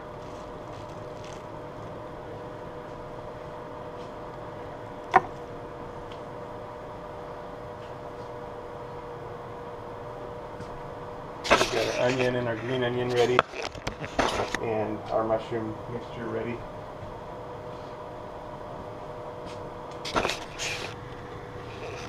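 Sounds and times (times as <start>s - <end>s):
gas burner hissing: 0.0s - 22.0s
steady hum: 0.0s - 22.0s.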